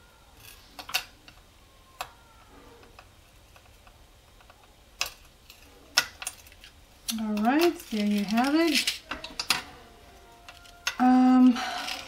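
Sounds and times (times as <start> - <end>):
metal jewelry parts clicking: 0.4 - 1.4, 2.9 - 9.7, 10.5 - 11.1, 11.8 - 12.0.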